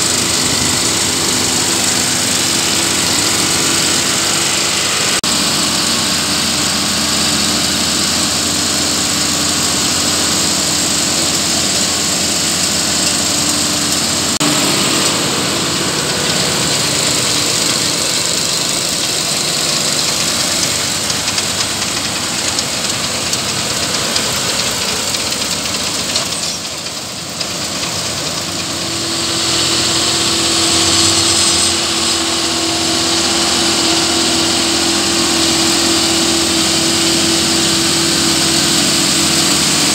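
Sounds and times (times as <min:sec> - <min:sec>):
tractor engine and baler machinery: 0:00.0 - 0:39.9
steady hum: 0:28.2 - 0:39.9.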